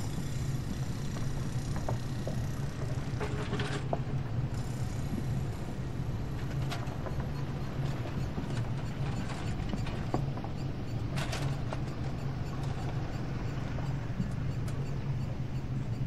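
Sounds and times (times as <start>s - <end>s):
ship engine droning: 0.0s - 16.0s
scattered clicks and ticks: 6.4s - 16.0s.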